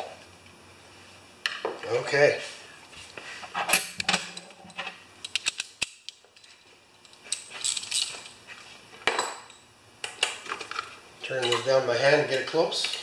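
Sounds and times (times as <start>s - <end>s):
metal parts clinking and rattling: 7.2s - 8.4s.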